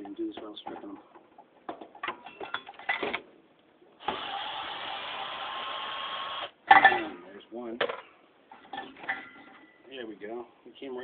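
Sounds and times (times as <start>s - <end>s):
clicks and knocks of handling: 0.0s - 3.3s
cordless screwdriver running: 4.0s - 6.5s.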